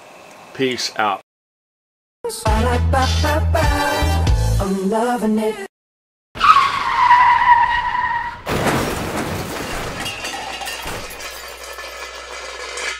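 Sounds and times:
car tyres screeching: 6.4 - 8.5
car crash with shattering: 8.3 - 12.9.

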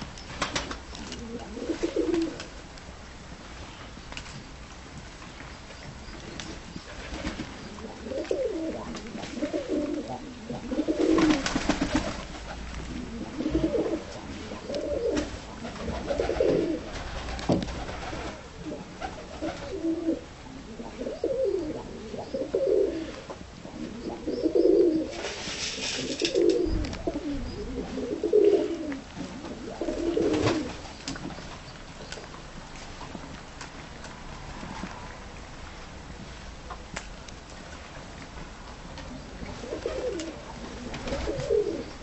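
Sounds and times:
pigeons cooing: 1.0 - 2.6, 7.1 - 31.0, 39.1 - 42.0.

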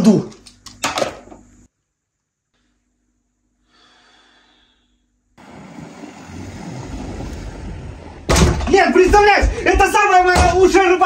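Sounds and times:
faint steady hum: 0.0 - 11.0
soft exhale: 3.6 - 5.0.

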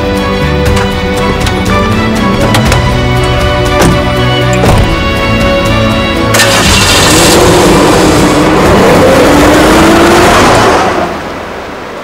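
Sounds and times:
car engine accelerating: 5.8 - 11.6.

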